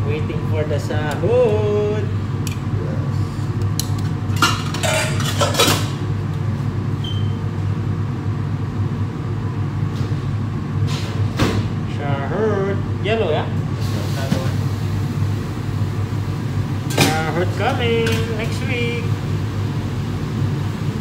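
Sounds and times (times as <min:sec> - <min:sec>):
extractor hood fan drone: 0:00.0 - 0:21.0
food preparation clatters: 0:03.8 - 0:06.0.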